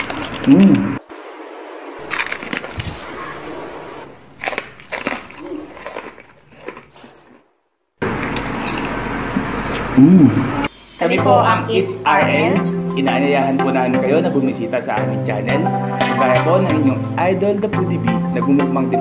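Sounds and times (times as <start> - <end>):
crunchy chewing: 0.0 - 1.0, 2.0 - 3.6, 4.2 - 10.2
background music: 11.0 - 19.0.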